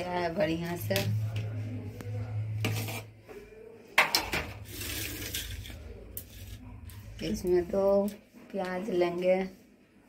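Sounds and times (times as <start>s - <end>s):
plate scraping on counter: 2.6s - 3.2s, 4.0s - 6.6s.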